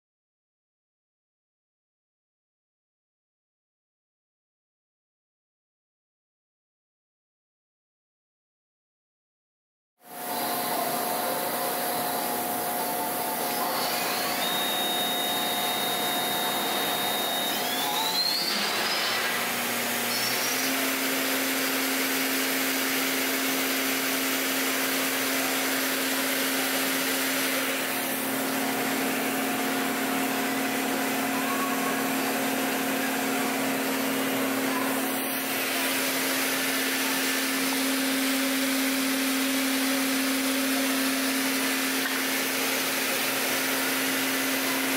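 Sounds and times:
mill spindle whirring: 0:10.1 - 0:44.9
high rising whine: 0:10.2 - 0:20.8.

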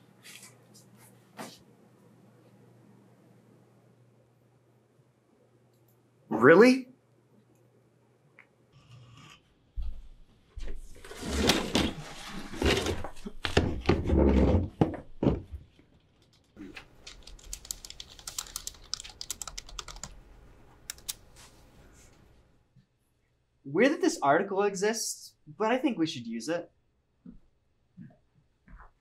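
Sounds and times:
fast typing on keyboard: 0:17.0 - 0:20.2, 0:20.8 - 0:21.2.

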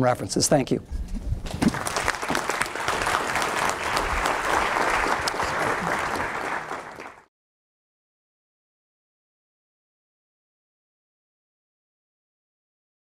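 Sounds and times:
audience applauding: 0:01.5 - 0:07.3.

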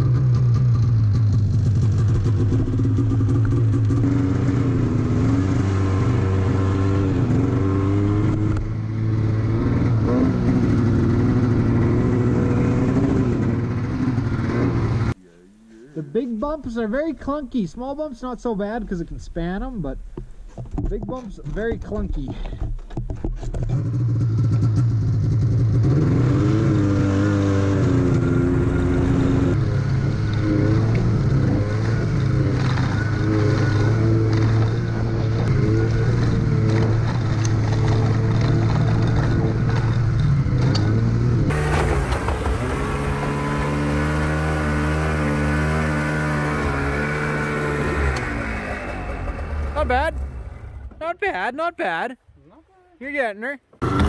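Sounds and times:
snowmobile engine at low revs: 0:00.0 - 0:15.2, 0:23.4 - 0:50.9, 0:53.8 - 0:54.0
snowmobile engine running: 0:00.0 - 0:15.2, 0:23.7 - 0:50.8.

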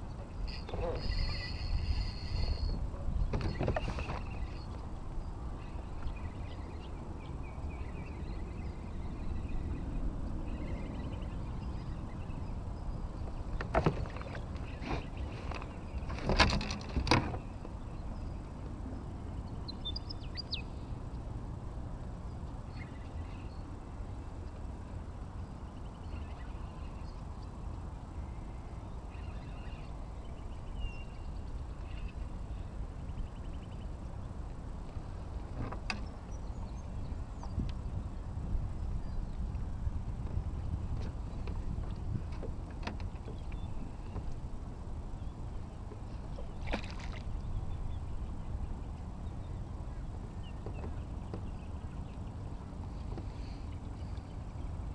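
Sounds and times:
wind buffeting microphone: 0:00.0 - 0:20.4, 0:27.8 - 0:53.2
bird chirps and trills: 0:00.3 - 0:16.2, 0:19.4 - 0:20.9.

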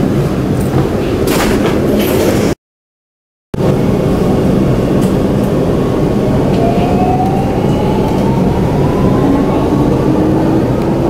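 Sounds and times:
train wheels rumbling: 0:03.6 - 0:11.0.

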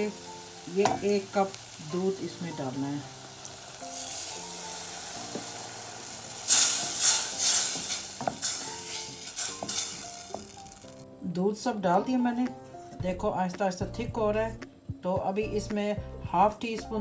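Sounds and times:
milk sizzling in hot pan: 0:00.0 - 0:11.0
wooden spoon scraping pan: 0:06.4 - 0:10.7.

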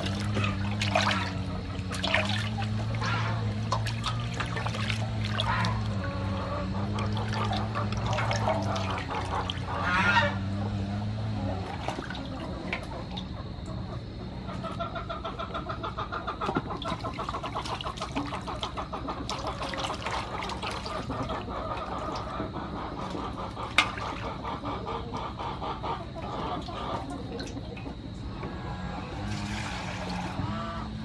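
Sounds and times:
water sloshing in a metal basin: 0:00.0 - 0:31.0.

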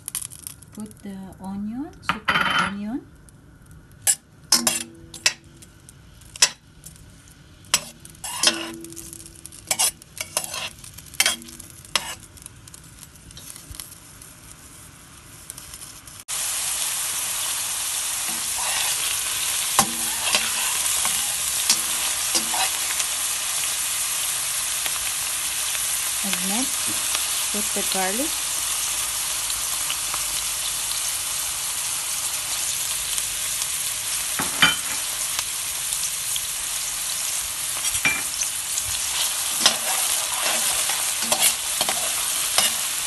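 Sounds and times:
onions sizzling in oil: 0:00.0 - 0:01.9, 0:02.9 - 0:43.0
metal spoon scraping a pan: 0:04.1 - 0:05.4, 0:07.7 - 0:12.3, 0:18.2 - 0:23.3, 0:37.7 - 0:43.0.

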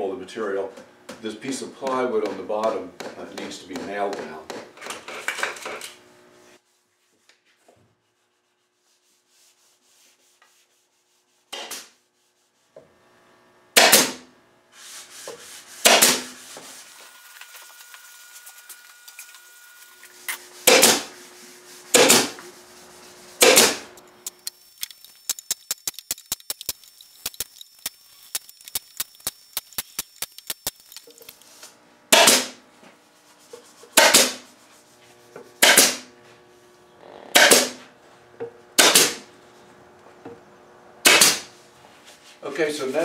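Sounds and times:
nail gun firing into wood: 0:13.7 - 0:14.3, 0:15.8 - 0:16.3, 0:20.7 - 0:21.1, 0:21.9 - 0:22.4, 0:23.4 - 0:23.9, 0:32.1 - 0:32.6, 0:34.0 - 0:34.4, 0:35.6 - 0:36.1, 0:37.3 - 0:37.8, 0:38.8 - 0:39.3, 0:41.0 - 0:41.5.

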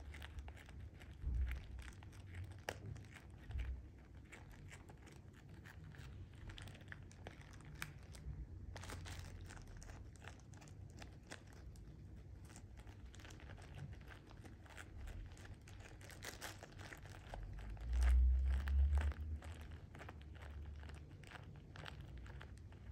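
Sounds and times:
plastic bag crinkling and tearing: 0:00.0 - 0:22.9.

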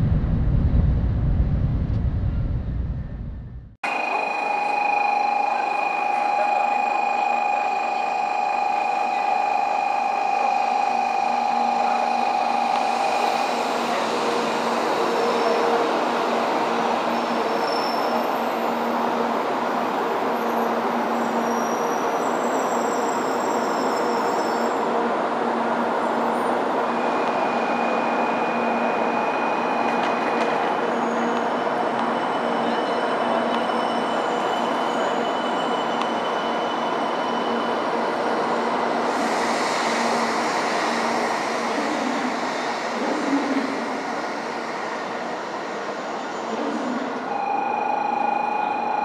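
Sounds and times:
train wheels and air rushing: 0:37.9 - 0:46.3
steady high-pitched tone: 0:47.3 - 0:49.0.

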